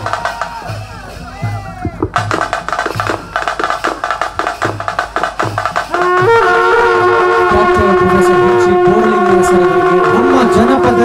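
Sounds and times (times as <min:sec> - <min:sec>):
quick drum strokes: 0:00.0 - 0:11.0
wind instrument long note: 0:05.9 - 0:11.0.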